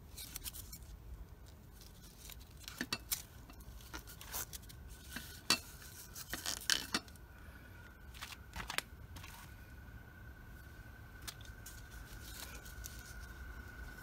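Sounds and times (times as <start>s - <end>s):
fabric strap rustling: 11.2s - 13.5s.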